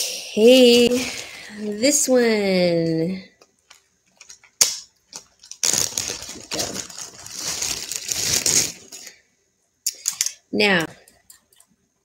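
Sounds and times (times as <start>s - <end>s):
packaging crinkling: 3.6s - 9.2s.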